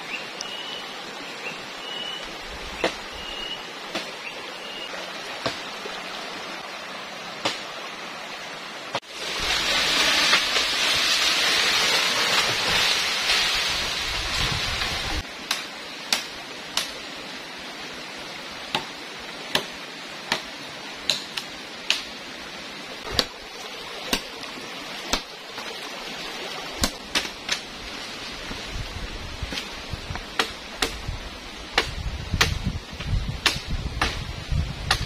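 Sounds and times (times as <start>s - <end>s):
flowing river water: 0.0s - 35.0s
machete chopping branches: 7.4s - 7.8s, 15.4s - 17.0s, 19.5s - 19.7s, 20.3s - 22.1s, 23.0s - 23.4s, 25.1s - 25.4s, 26.8s - 27.7s, 30.3s - 31.1s, 31.8s - 35.0s.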